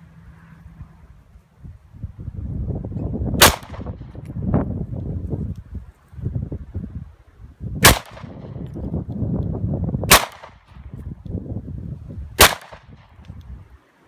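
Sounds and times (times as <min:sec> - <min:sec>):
wind rumble on microphone: 0:00.0 - 0:13.9
handgun shots: 0:03.4 - 0:04.0, 0:07.8 - 0:08.4, 0:10.1 - 0:10.6, 0:12.4 - 0:13.0.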